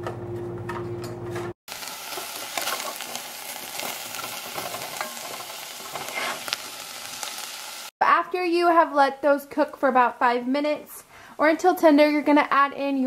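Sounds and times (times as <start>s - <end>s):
vegetables sizzling in a pot: 1.7s - 7.9s.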